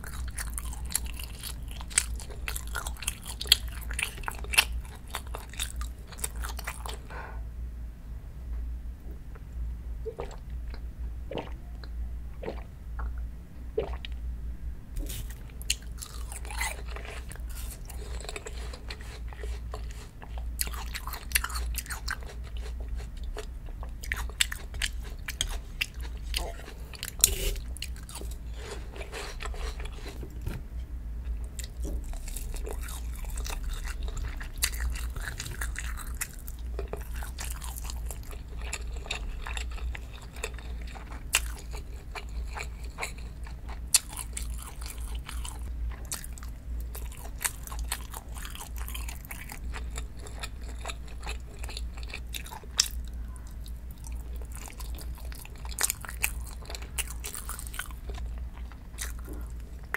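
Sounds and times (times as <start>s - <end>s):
person chewing food: 0.0s - 7.4s, 10.1s - 13.2s, 13.8s - 14.2s, 15.0s - 30.6s, 31.2s - 59.9s
low hum: 6.9s - 20.3s.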